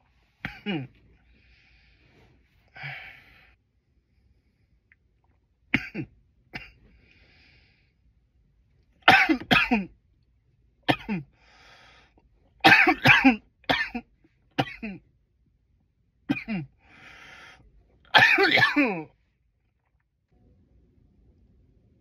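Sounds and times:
man coughing: 0.4s - 1.0s, 5.8s - 6.8s, 9.1s - 9.9s, 10.9s - 11.3s, 12.6s - 15.0s, 16.3s - 16.7s, 18.1s - 19.1s.

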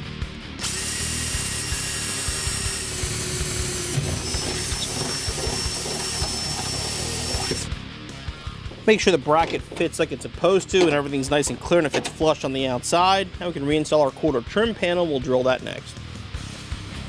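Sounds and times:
cordless drill drilling sheet steel: 0.6s - 7.7s.

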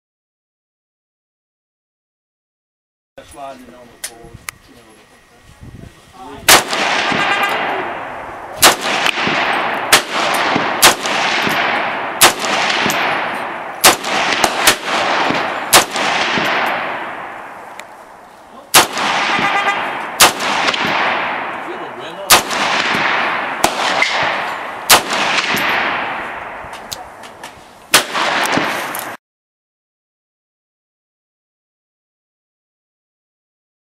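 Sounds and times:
rifle shots with echo: 6.4s - 27.2s, 27.9s - 29.2s.

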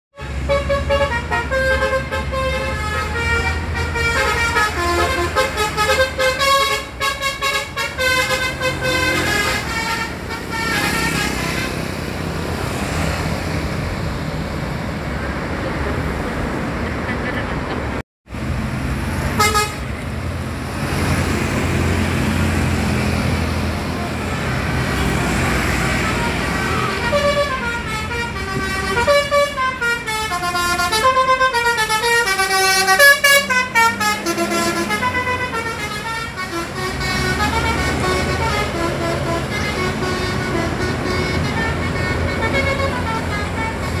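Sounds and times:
bus engines and traffic: 0.1s - 44.0s
musical bus horns playing tune: 0.2s - 12.2s, 19.3s - 20.0s, 23.8s - 44.0s.

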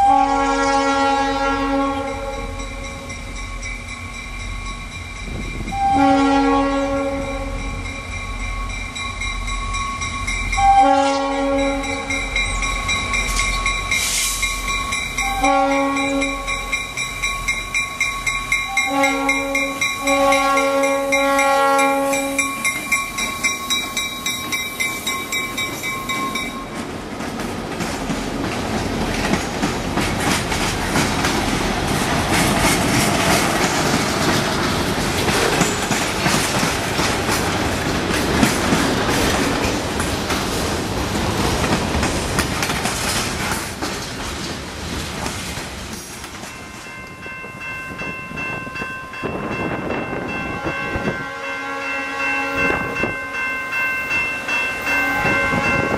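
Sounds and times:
locomotive horn blasts: 0.0s - 2.9s, 5.7s - 7.8s, 10.6s - 12.3s, 15.2s - 16.7s, 18.7s - 22.8s, 50.3s - 53.1s, 54.8s - 55.9s
crossing bell ringing: 1.3s - 27.0s, 46.4s - 55.9s
train wheels clattering over rail joints: 22.5s - 46.6s.

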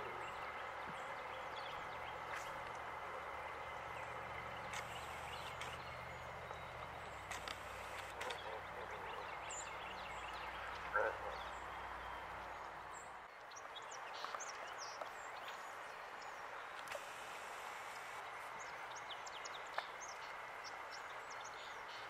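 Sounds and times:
distant voice: 0.0s - 12.9s
small birds chirping: 0.0s - 22.0s
steady rushing hiss: 15.8s - 22.0s.

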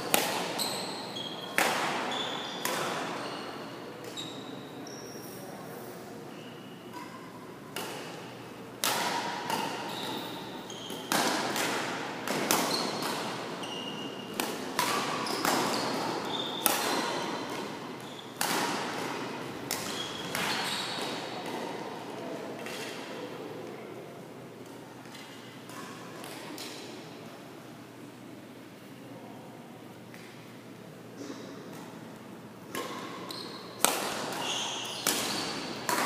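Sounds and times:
racket hitting shuttlecock: 0.1s - 0.6s, 1.6s - 3.2s, 7.7s - 21.8s, 32.7s - 36.0s
shoe squeaks: 0.6s - 5.5s, 6.3s - 7.3s, 9.8s - 11.1s, 13.6s - 14.3s, 15.2s - 18.4s, 19.9s - 21.2s, 33.2s - 33.8s, 34.4s - 35.7s.

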